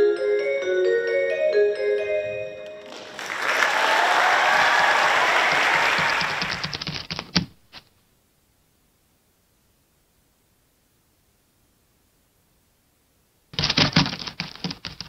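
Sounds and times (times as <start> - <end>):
audience applauding: 2.7 - 6.9.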